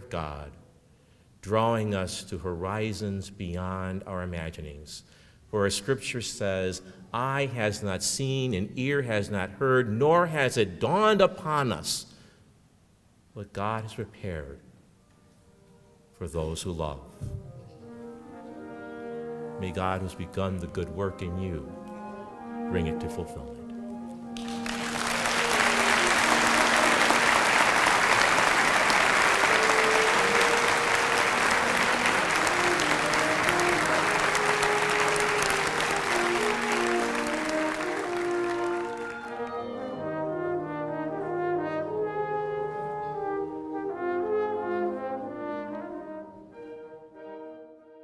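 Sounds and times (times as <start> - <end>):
brass music: 17.5 - 48.0
audience applauding: 24.4 - 39.8.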